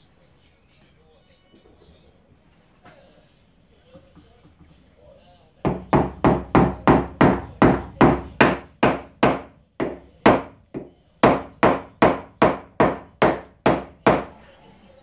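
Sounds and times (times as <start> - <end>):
mallet knocking on plywood: 5.7 - 14.3.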